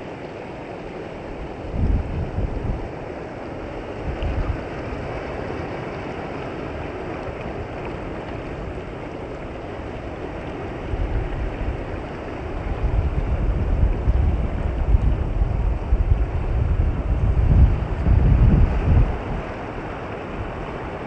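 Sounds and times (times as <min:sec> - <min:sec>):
small waves washing on sand: 0:00.0 - 0:21.0
wind buffeting microphone: 0:01.1 - 0:21.0.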